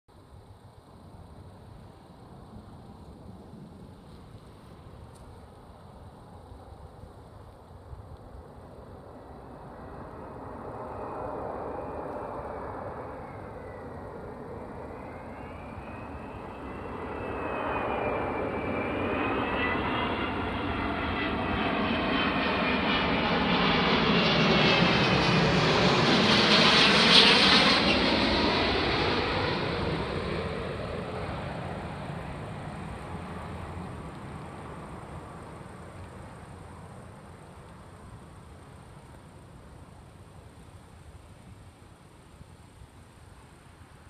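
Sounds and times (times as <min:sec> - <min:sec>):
jet engines passing overhead: 0:00.2 - 0:44.0
high wavering whine: 0:09.0 - 0:39.8.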